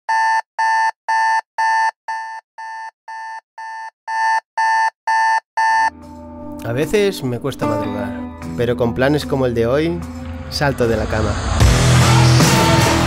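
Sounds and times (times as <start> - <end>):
smartphone alarm beeping: 0.1 - 6.0.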